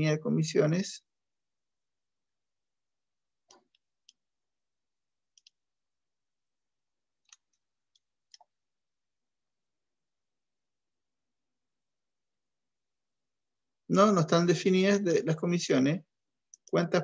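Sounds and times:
computer mouse clicks: 3.4 - 4.3, 5.3 - 5.6, 7.2 - 8.6, 16.5 - 16.8.

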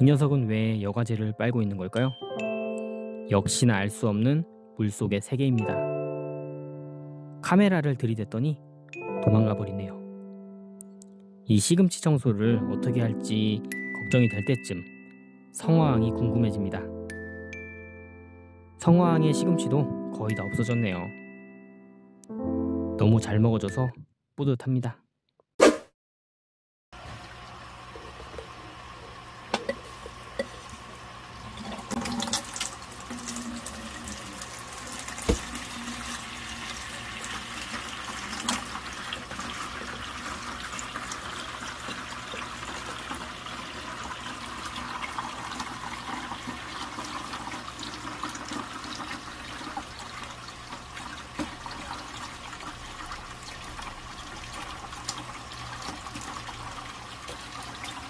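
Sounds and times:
water rushing through siphon hose: 29.6 - 50.3.

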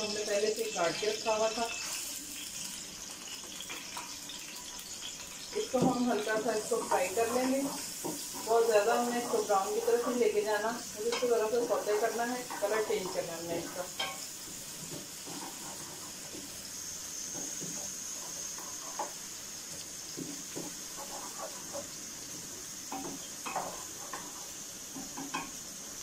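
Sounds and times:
onion sizzling in hot oil: 0.0 - 26.0
wooden spoon scraping metal pot: 5.5 - 16.3, 20.2 - 22.0.

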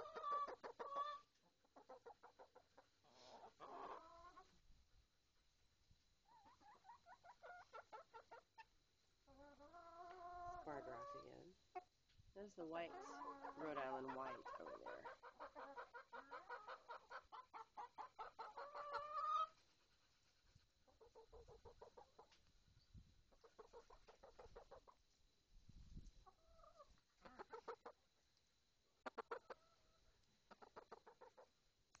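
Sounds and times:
hens clucking: 0.0 - 4.6, 6.2 - 12.0, 12.6 - 19.9, 20.9 - 22.4, 23.3 - 25.0, 26.2 - 28.0, 29.0 - 31.6
drawn-out rising hen call: 12.9 - 19.6.

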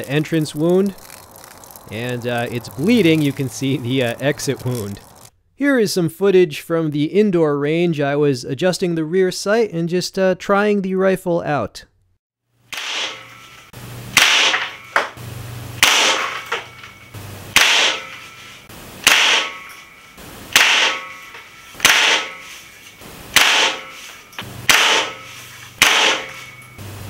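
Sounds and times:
air rifle shots: 12.7 - 13.4, 14.1 - 15.2, 15.8 - 18.3, 19.0 - 19.9, 20.5 - 22.5, 23.3 - 26.6.

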